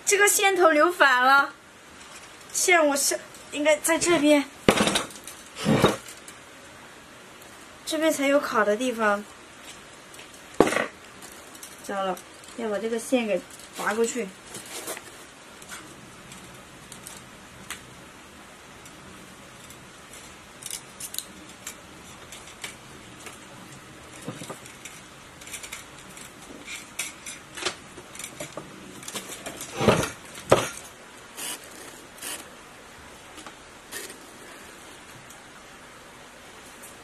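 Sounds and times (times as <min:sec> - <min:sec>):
wires and small tools clinking: 0:01.9 - 0:06.4, 0:09.6 - 0:17.9, 0:18.8 - 0:32.5.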